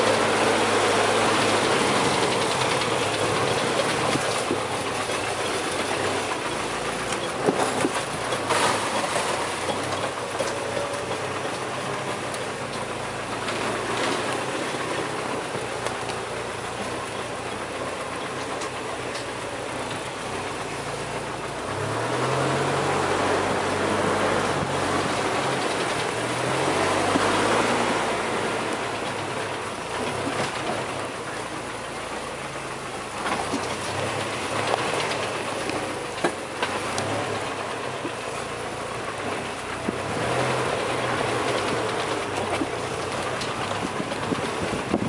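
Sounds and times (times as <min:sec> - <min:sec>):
off-road vehicle engine running low: 0:00.0 - 0:45.0
rattle of body and suspension: 0:00.0 - 0:45.0
rocks knocking underside: 0:07.1 - 0:11.7.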